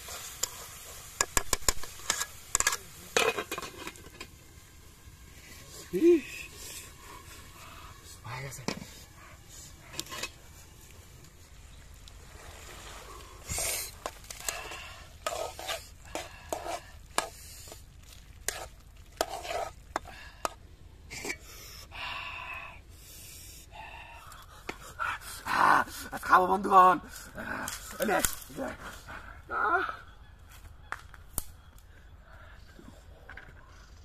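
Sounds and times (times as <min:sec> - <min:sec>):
curry sizzling: 0:00.0 - 0:21.8
spatula scraping a pot: 0:01.2 - 0:04.3, 0:09.9 - 0:10.4, 0:13.5 - 0:20.6.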